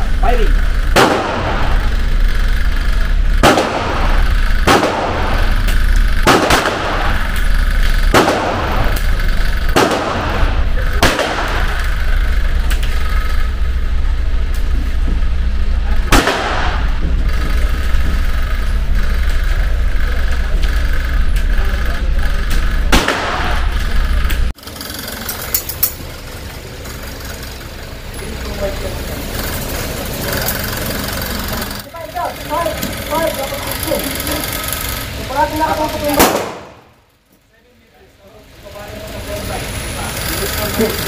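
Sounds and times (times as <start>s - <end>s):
steady low hum: 0.0s - 41.0s
handgun shots with echo: 1.0s - 1.8s, 3.4s - 5.5s, 6.2s - 7.2s, 8.1s - 9.0s, 9.8s - 11.8s, 16.1s - 16.9s, 22.9s - 23.7s, 36.2s - 36.9s.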